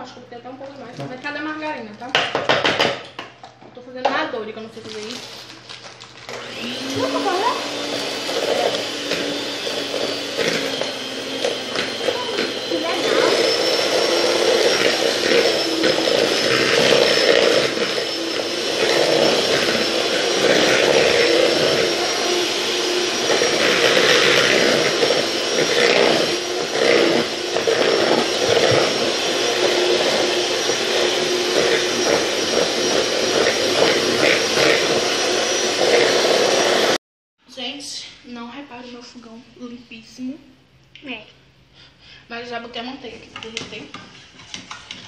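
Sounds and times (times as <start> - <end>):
electric hand mixer whirring: 4.5 - 37.0.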